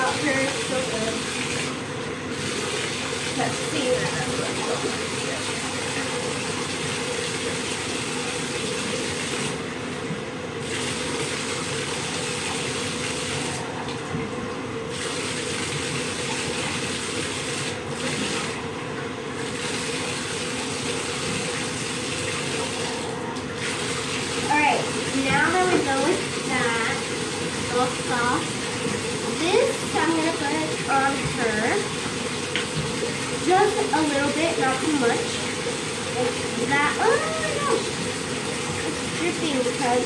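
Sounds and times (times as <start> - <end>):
tap running into bathtub: 19.4 - 40.0.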